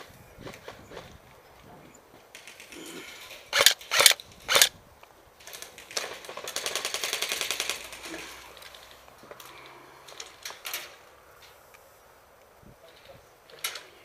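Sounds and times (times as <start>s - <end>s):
airsoft rifle firing bursts: 3.5s - 4.7s, 5.9s - 8.1s.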